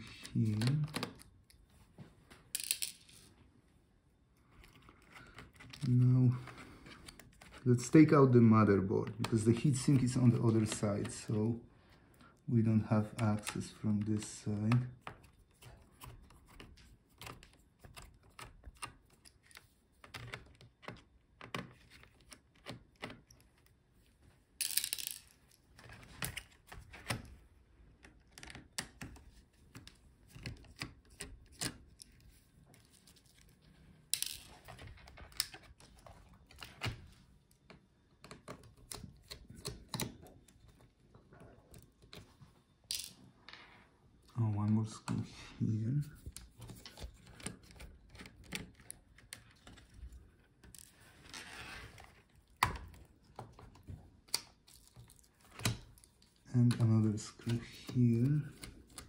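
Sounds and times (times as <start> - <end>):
plastic laptop parts handled: 0.0 - 3.4, 4.4 - 8.1, 13.0 - 43.1, 46.0 - 59.0.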